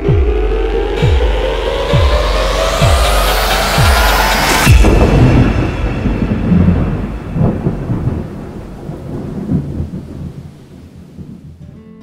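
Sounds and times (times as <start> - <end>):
rising electronic music sweeps: 0.0 - 9.5.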